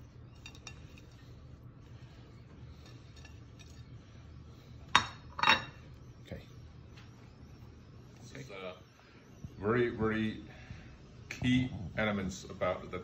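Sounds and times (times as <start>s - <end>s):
plate clinking against dish: 4.9s - 5.8s.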